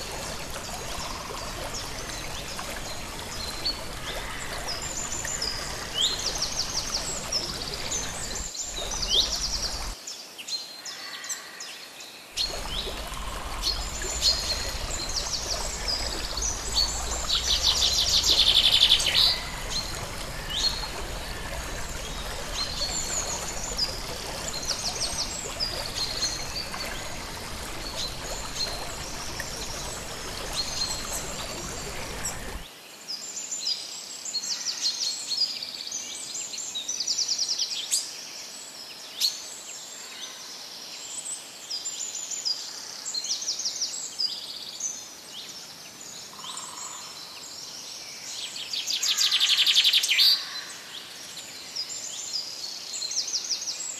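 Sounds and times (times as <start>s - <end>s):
birds chirping: 0.0s - 10.0s, 12.4s - 32.6s
waterfall rushing: 0.0s - 10.0s, 12.4s - 32.6s.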